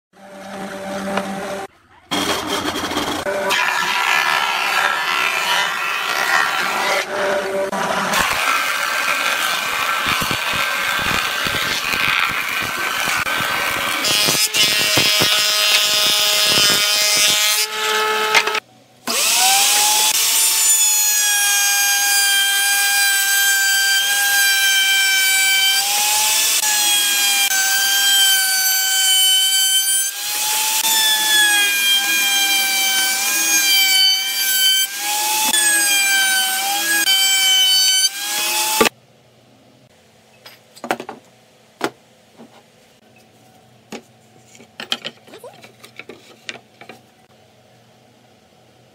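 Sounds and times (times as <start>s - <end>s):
table saw blade whine: 0.2s - 38.9s
wood planer running: 0.2s - 38.9s.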